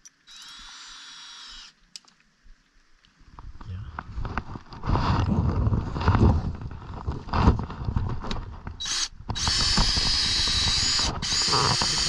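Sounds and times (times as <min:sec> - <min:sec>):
cordless drill boring into wood: 0:00.3 - 0:01.8, 0:08.8 - 0:12.0.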